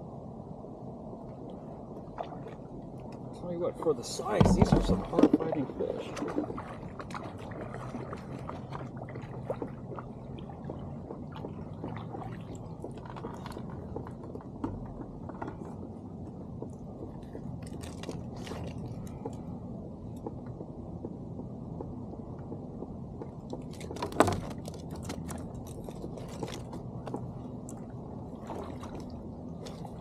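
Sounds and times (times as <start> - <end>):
knocks and clicks from rod and net: 4.3 - 5.5.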